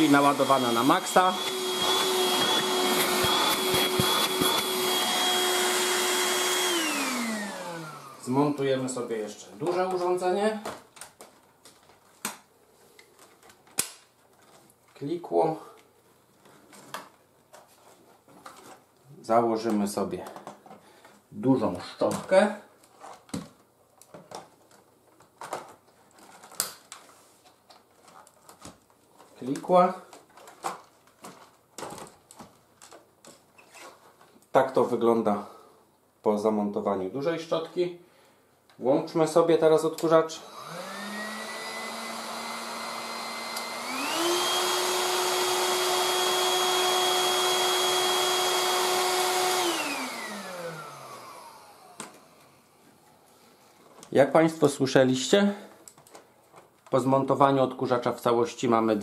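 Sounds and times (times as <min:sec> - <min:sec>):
stick vacuum motor whine: 0:00.0 - 0:08.7, 0:40.4 - 0:52.6
plastic parts clicking and knocking: 0:20.2 - 0:21.2, 0:22.0 - 0:29.4, 0:30.1 - 0:33.5.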